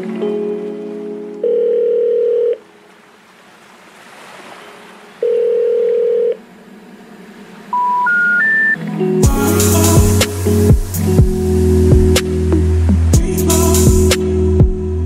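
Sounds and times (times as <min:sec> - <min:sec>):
electronic beeps: 0:07.7 - 0:08.8.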